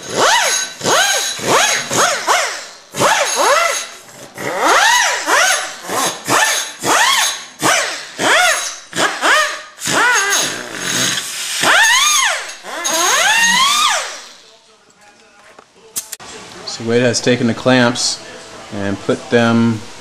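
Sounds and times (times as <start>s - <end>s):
die grinder whining in bursts: 0.0s - 14.4s.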